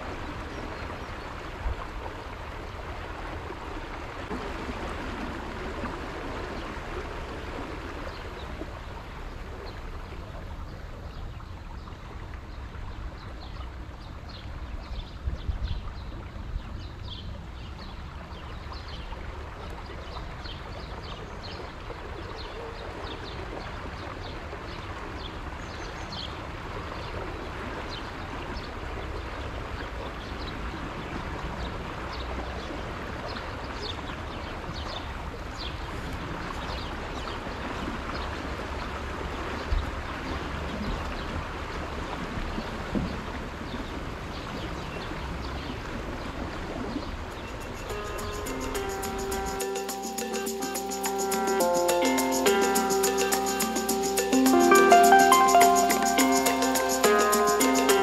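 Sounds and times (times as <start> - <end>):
rushing water: 0.0 - 58.0
short high chirps: 47.5 - 58.0.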